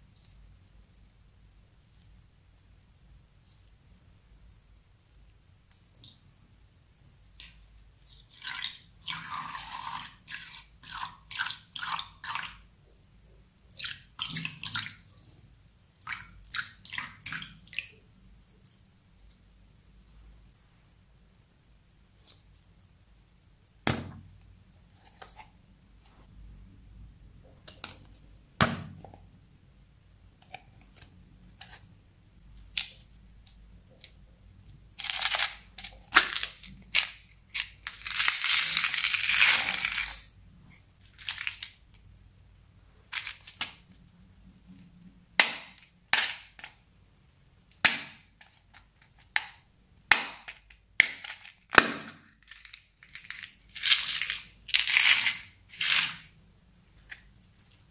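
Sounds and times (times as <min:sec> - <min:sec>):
plastic beads rattling in a box: 0:35.0 - 0:40.2.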